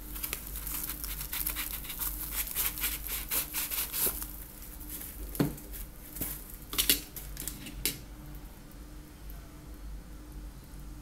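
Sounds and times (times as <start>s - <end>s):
cardboard and plastic rustling: 3.2s - 7.6s.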